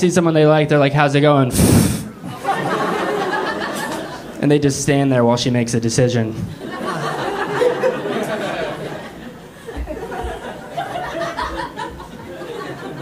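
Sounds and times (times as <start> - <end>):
audience laughing: 1.6 - 4.4, 6.5 - 13.0.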